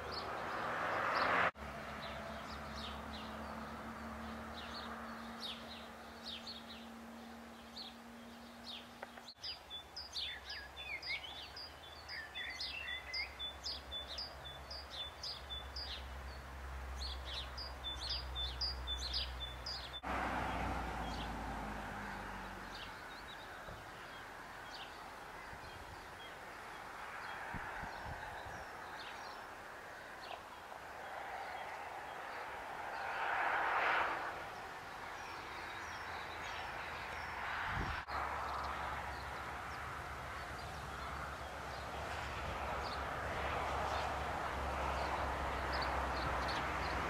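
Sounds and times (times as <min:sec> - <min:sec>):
small birds chirping: 0:00.0 - 0:33.2, 0:34.5 - 0:44.2, 0:44.8 - 0:47.0.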